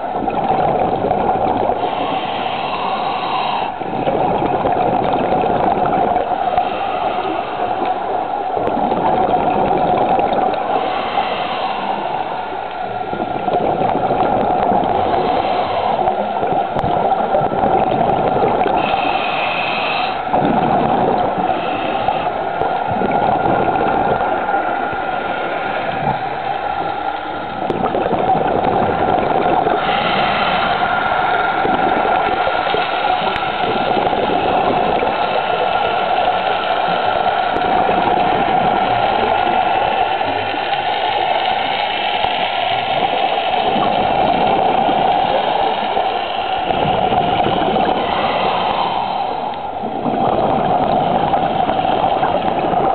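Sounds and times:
air bubbles gurgling: 0:00.0 - 0:52.9
underwater hum and rush: 0:00.0 - 0:52.9.

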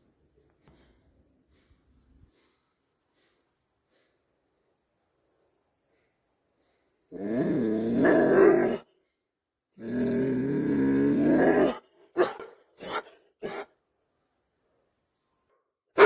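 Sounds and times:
dog growl-like vocalizations: 0:07.1 - 0:08.9, 0:09.8 - 0:11.8
dog barking: 0:11.7 - 0:13.7.

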